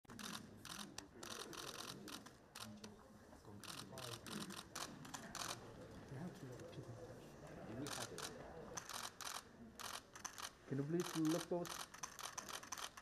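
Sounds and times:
murmur of voices: 0:00.1 - 0:13.0
camera shutters clicking: 0:07.9 - 0:13.0.

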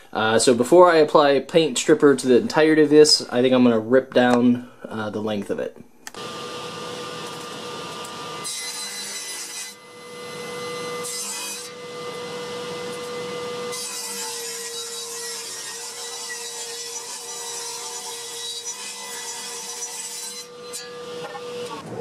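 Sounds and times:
table saw motor whine: 0:06.2 - 0:14.3, 0:20.5 - 0:22.0
saw blade cutting wood: 0:06.2 - 0:21.9.

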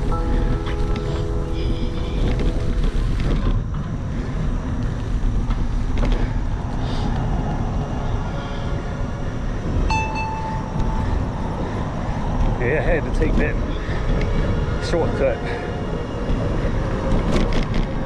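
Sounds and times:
bicycle tyres rolling on asphalt: 0:00.0 - 0:10.2, 0:10.8 - 0:18.0
wind buffeting microphone: 0:00.0 - 0:18.0
short high tone: 0:09.9 - 0:11.5.

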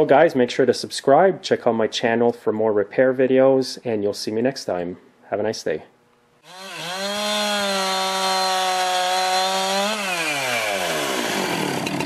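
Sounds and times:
chainsaw engine revving: 0:06.4 - 0:12.0.

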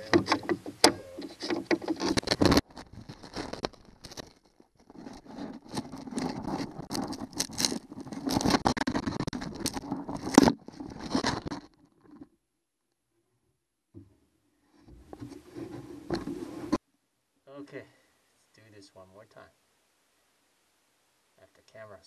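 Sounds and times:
rustling handling noise: 0:00.0 - 0:12.4, 0:14.6 - 0:16.8.

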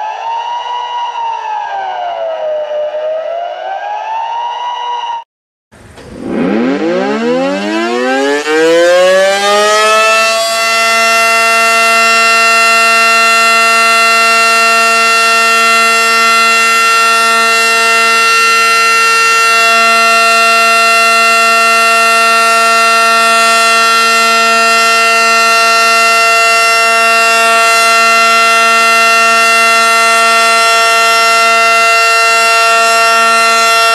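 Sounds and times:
warning siren winding up: 0:05.8 - 0:33.9.

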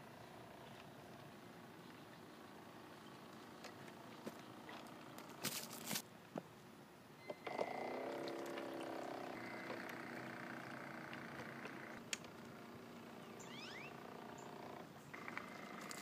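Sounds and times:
brief rustle: 0:05.3 - 0:06.0
small electric motor whining: 0:07.4 - 0:12.0.

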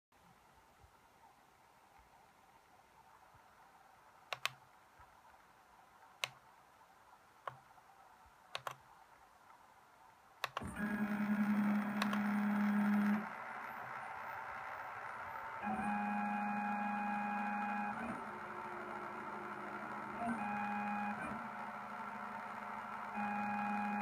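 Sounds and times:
sharp clicks: 0:04.3 - 0:04.6, 0:06.2 - 0:06.4, 0:08.5 - 0:08.8, 0:10.4 - 0:24.0
stepper motors whining: 0:10.6 - 0:24.0.

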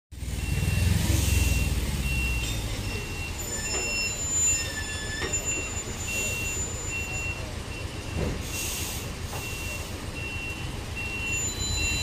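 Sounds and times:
diesel engine rumble: 0:00.1 - 0:12.0
truck warning beeps: 0:00.2 - 0:12.0.

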